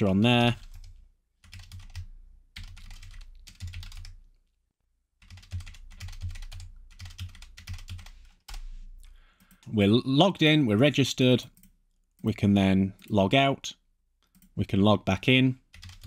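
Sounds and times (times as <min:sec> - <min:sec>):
typing on computer keyboard: 0:00.6 - 0:04.2, 0:05.2 - 0:08.6, 0:15.7 - 0:16.0.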